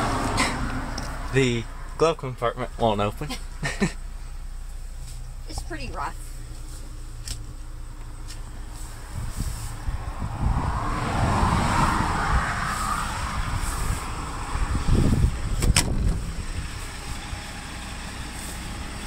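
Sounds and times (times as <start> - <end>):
wind rumble: 5.9 - 18.2
noisy rustle: 8.3 - 10.1, 12.6 - 17.4.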